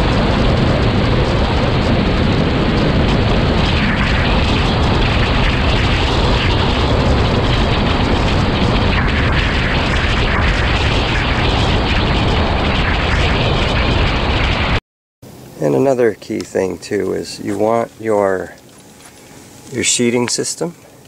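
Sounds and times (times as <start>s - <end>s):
wheels rolling over ground: 0.0s - 14.6s
wind buffeting microphone: 0.0s - 14.8s.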